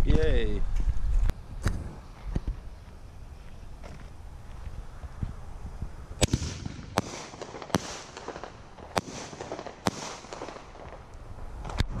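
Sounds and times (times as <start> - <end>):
firework crackling hiss: 4.2 - 12.0
firework bangs: 6.2 - 12.0.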